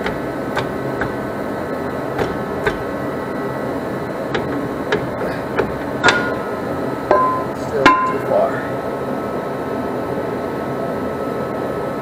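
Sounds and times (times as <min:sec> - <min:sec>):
metal clunks and scrapes: 0:00.0 - 0:01.3, 0:02.1 - 0:03.0, 0:04.3 - 0:08.2
steady background hum: 0:00.0 - 0:12.0.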